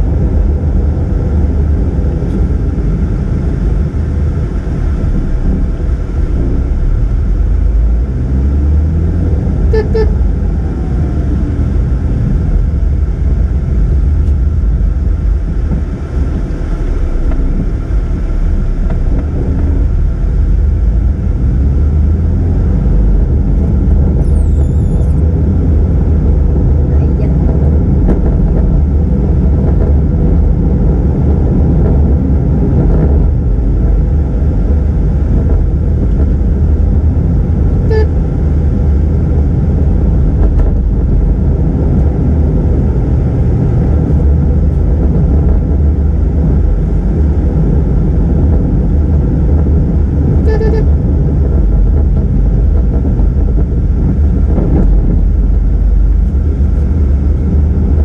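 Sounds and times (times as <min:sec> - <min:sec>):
car engine and tyre rumble: 0:00.0 - 0:58.0
vehicle horn toots: 0:09.7 - 0:10.4, 0:37.9 - 0:38.2, 0:50.4 - 0:51.0.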